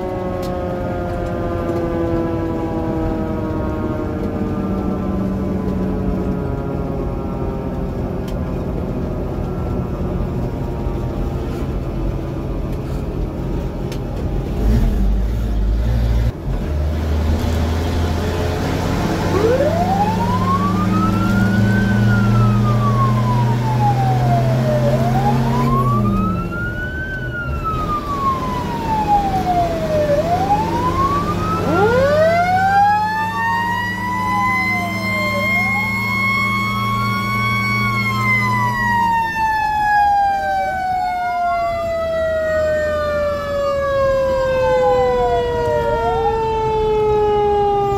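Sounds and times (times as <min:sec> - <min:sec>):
siren wailing: 0:00.0 - 0:11.1, 0:18.4 - 0:47.9
fire truck engine: 0:00.0 - 0:47.9
second siren winding up: 0:19.1 - 0:47.9.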